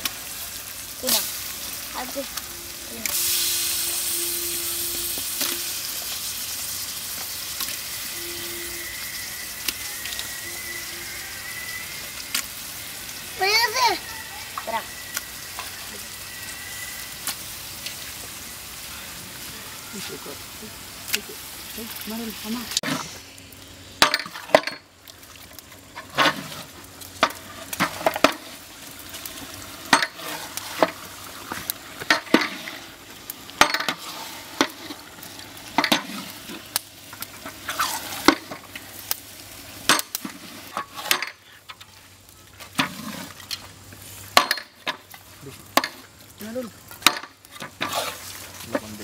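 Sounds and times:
curry sizzling: 0:00.0 - 0:49.0
metal spatula scraping pot: 0:42.8 - 0:43.4, 0:47.2 - 0:48.4.

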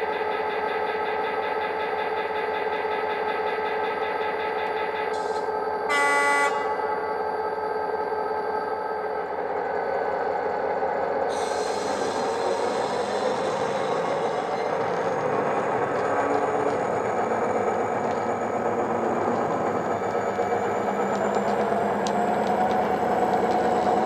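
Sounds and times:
horn blast: 0:05.9 - 0:06.8.

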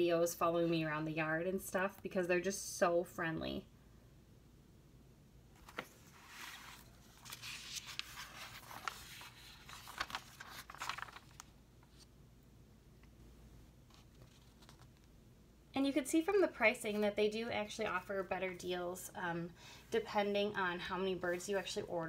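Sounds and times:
catalog pages turning: 0:05.6 - 0:12.1, 0:13.9 - 0:15.1.

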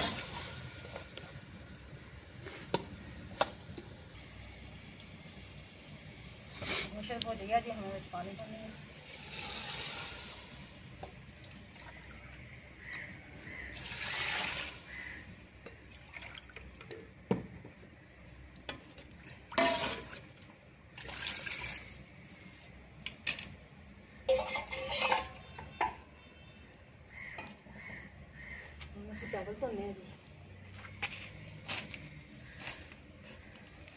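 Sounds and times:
liquid sloshing in a steel pot: 0:18.7 - 0:22.1
steel utensils and lids clinking: 0:19.6 - 0:20.1, 0:24.3 - 0:26.0.

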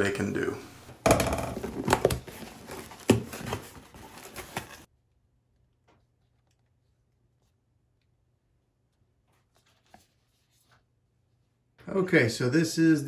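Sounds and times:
plastic packing rustling: 0:01.5 - 0:04.9
cardboard box being opened: 0:01.6 - 0:04.9.

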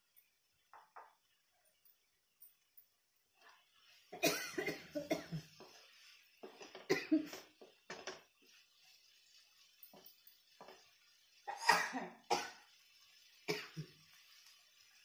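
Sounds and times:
person coughing: 0:04.2 - 0:05.4, 0:11.5 - 0:12.6.

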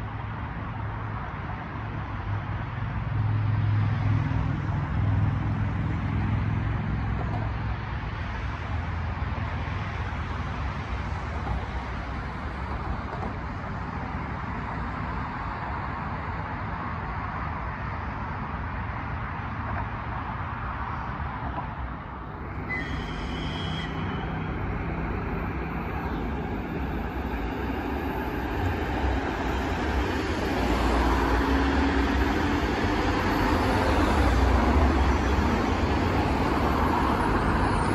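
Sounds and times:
bus and cars passing: 0:00.0 - 0:37.9
road traffic noise: 0:00.0 - 0:37.9
electric train pulling in: 0:22.0 - 0:37.9
brief high squeal: 0:22.6 - 0:24.5.

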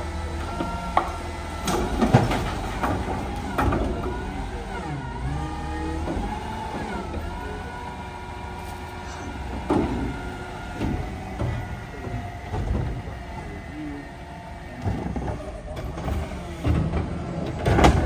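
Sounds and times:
hydraulic whine: 0:00.0 - 0:18.0
truck engine running: 0:00.0 - 0:18.0
metal clunks: 0:09.2 - 0:13.3.

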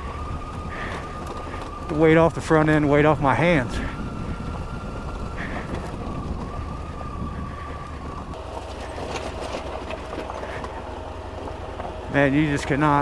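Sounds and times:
motorcycle engine at low revs: 0:00.0 - 0:13.0.

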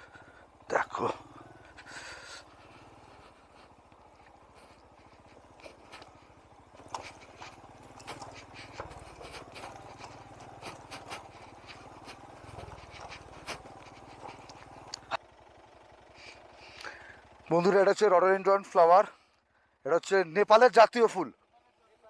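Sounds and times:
motorcycle engine running: 0:00.0 - 0:19.8
small clicks and rattles: 0:02.6 - 0:15.2.

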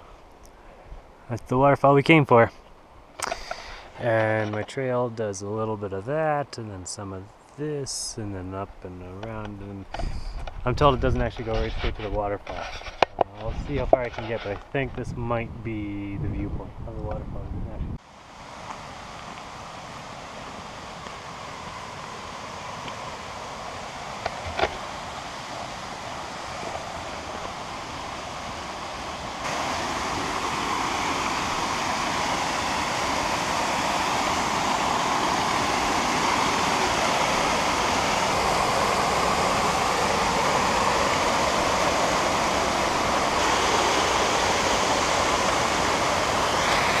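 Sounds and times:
waterfall rushing: 0:18.0 - 0:47.0.

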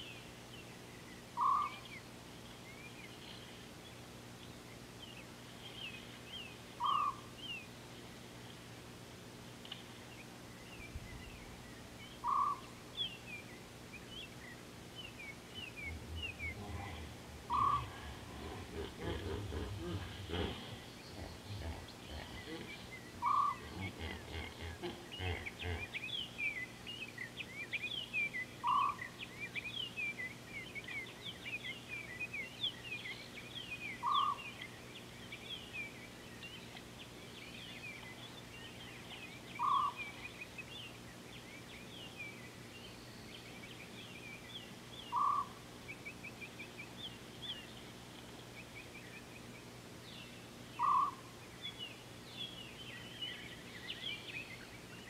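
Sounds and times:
birds chirping: 0:00.0 - 0:08.8, 0:09.5 - 0:55.0
short lower bird call: 0:15.6 - 0:21.2, 0:50.8 - 0:51.2.

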